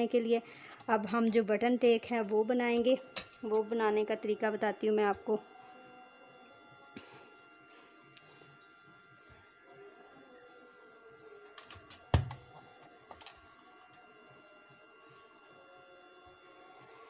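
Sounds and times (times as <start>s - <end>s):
bangles clinking: 3.2s - 5.0s, 7.6s - 9.3s, 10.3s - 15.6s, 16.2s - 17.0s
clothes iron thudding down: 12.1s - 12.4s.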